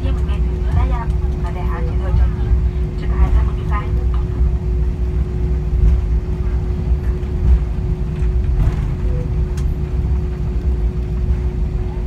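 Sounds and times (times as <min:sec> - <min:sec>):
low rumble of idling jet engines: 0:00.0 - 0:12.0
steady droning hum: 0:00.0 - 0:12.0.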